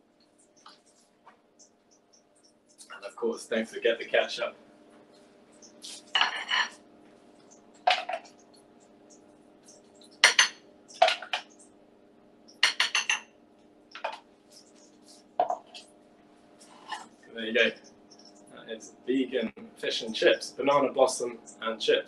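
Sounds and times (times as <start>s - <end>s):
faint steady hum: 0.0s - 22.0s
crockery and cutlery clinking: 6.2s - 6.8s, 12.6s - 13.2s.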